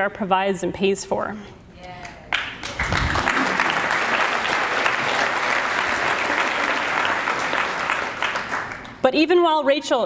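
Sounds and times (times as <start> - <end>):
audience applause: 2.6 - 9.0.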